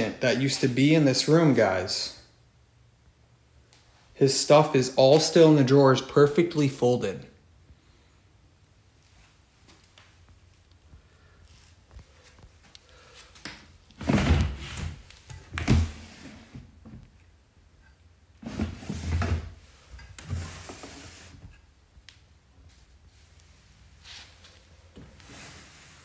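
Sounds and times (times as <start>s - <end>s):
drawers sliding open and shut: 14.0s - 16.8s, 18.4s - 21.6s, 25.0s - 26.0s.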